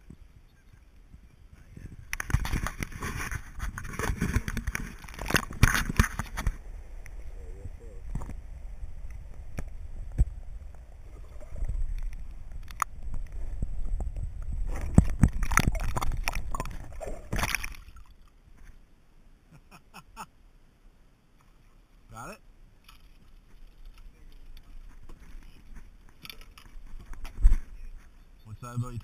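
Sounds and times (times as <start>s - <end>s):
underwater water sloshing: 2.0s - 18.8s
faint clicks: 9.0s - 16.7s
splashing: 14.6s - 18.4s.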